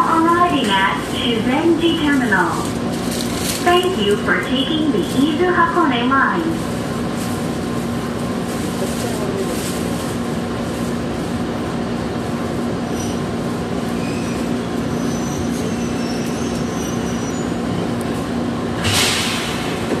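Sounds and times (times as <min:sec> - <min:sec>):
train running hum: 0:00.0 - 0:20.0
brake squeals: 0:14.0 - 0:17.6
loud air hiss: 0:18.8 - 0:19.9.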